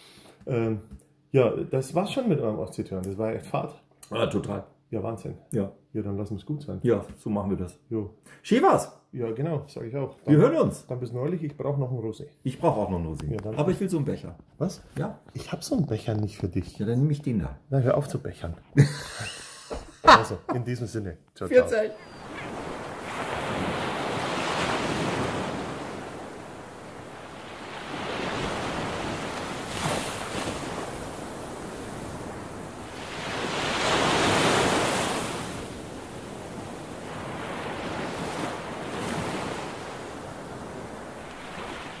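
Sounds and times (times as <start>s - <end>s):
sea waves rolling in and out: 21.5s - 42.0s.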